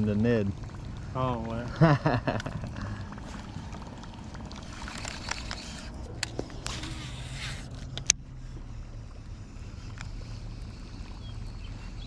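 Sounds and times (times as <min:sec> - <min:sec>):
low steady hum: 0:00.0 - 0:12.0
fishing reel rasping whir: 0:04.6 - 0:12.0.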